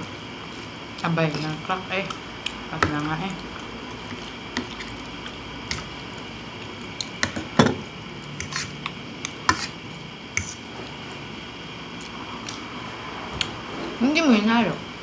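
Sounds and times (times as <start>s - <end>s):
fork scraping on ceramic plate: 8.4s - 8.8s, 9.5s - 9.8s.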